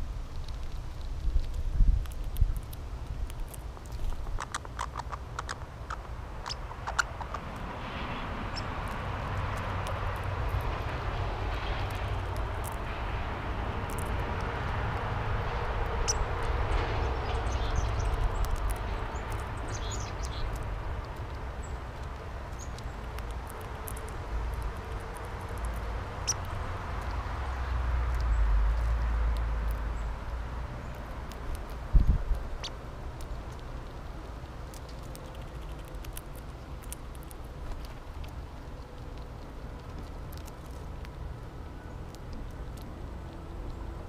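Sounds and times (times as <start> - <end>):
sharp clicks: 0.3 - 7.4
distant engine noise: 2.6 - 44.0.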